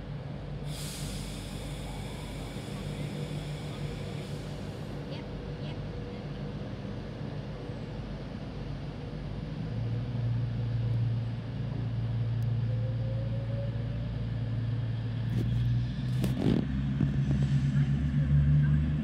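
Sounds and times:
electric train humming: 0:00.0 - 0:07.6.

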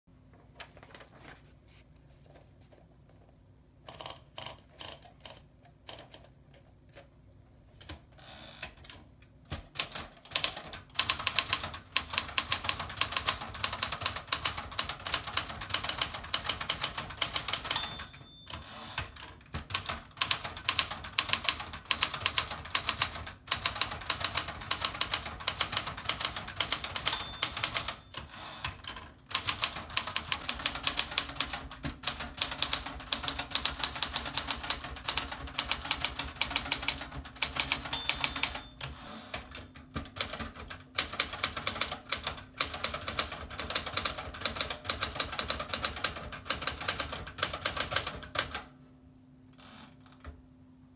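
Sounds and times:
typewriter typing: 0:03.8 - 0:06.3, 0:08.6 - 0:48.7
paper feed clicks: 0:08.6 - 0:48.7
typewriter margin bell ring: 0:17.3 - 0:18.9, 0:26.6 - 0:28.3, 0:37.4 - 0:39.0.

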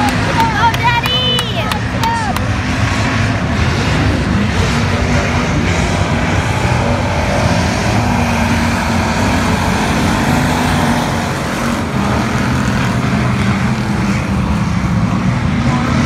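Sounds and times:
race car engines running: 0:00.0 - 0:16.0.

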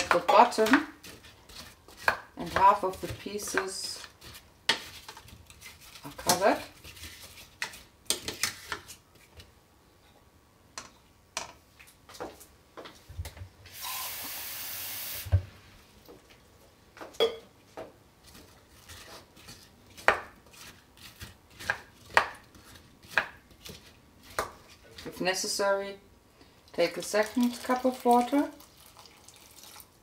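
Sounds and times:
spoon stirring in metal pot: 0:00.0 - 0:09.4.

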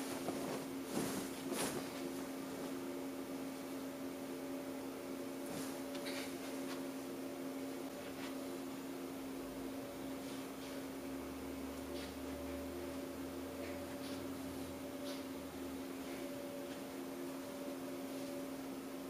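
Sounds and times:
cloth rustling: 0:00.0 - 0:02.9, 0:05.4 - 0:06.9
electrical hum: 0:00.0 - 0:19.0.

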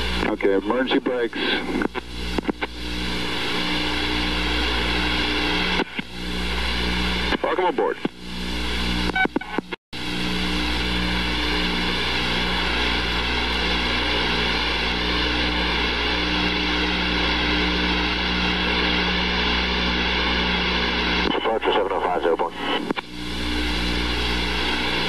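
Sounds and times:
aircraft engines droning with whine: 0:00.0 - 0:25.0.

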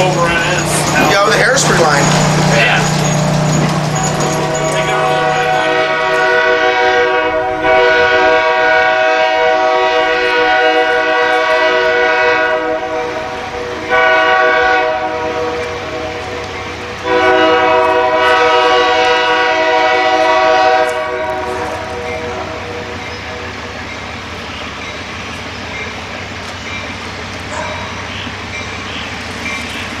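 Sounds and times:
low engine rumble: 0:00.0 - 0:08.2
locomotive air horn blasts: 0:04.4 - 0:23.5.

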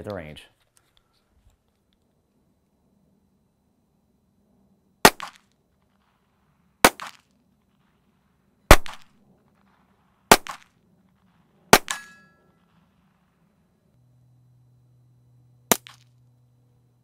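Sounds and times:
pistol shots: 0:05.0 - 0:05.5, 0:06.8 - 0:07.3, 0:08.7 - 0:09.2, 0:10.3 - 0:10.8, 0:11.7 - 0:12.4, 0:15.7 - 0:16.1.

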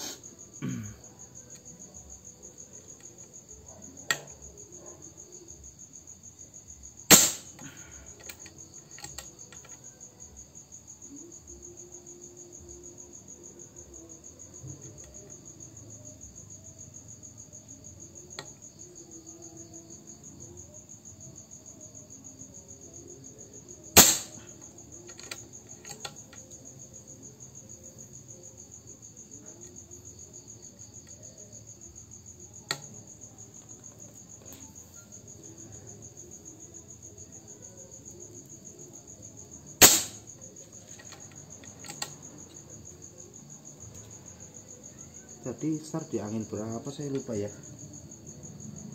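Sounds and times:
crickets chirping: 0:00.0 - 0:48.9
air rifle shots: 0:07.1 - 0:07.7, 0:24.0 - 0:24.4, 0:39.8 - 0:40.2.

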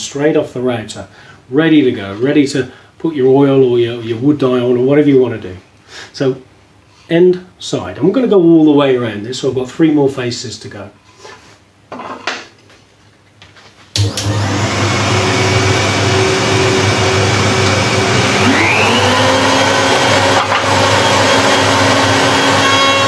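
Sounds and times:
router cutting wood: 0:14.0 - 0:23.0
router motor running: 0:14.0 - 0:23.0.

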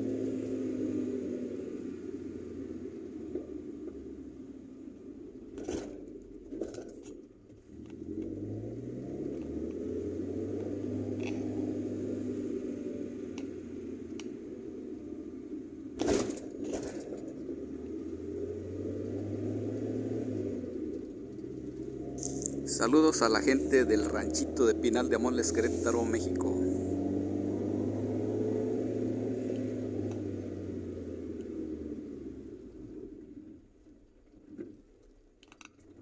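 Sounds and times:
car engine and road noise: 0:00.0 - 0:36.0
car rattling: 0:03.0 - 0:19.8, 0:20.4 - 0:36.0
car jolting over speed bump: 0:05.5 - 0:07.3, 0:16.0 - 0:17.4.

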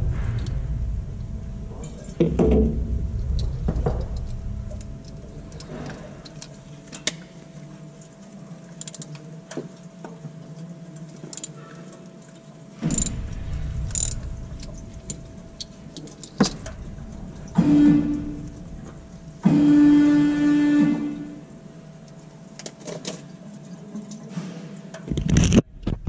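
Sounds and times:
faint hum: 0:00.0 - 0:26.0
socket ratchet clicking: 0:08.8 - 0:09.1, 0:11.3 - 0:11.5, 0:12.9 - 0:13.2, 0:14.0 - 0:14.2
metal tools clinking: 0:11.3 - 0:11.6, 0:12.9 - 0:13.2, 0:14.0 - 0:14.2, 0:16.1 - 0:16.6.

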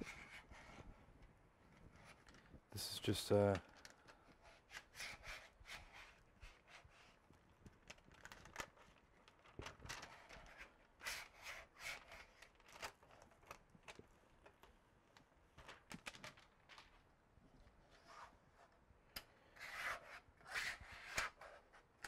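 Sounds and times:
tool scraping adhesive sheet: 0:19.6 - 0:21.7.

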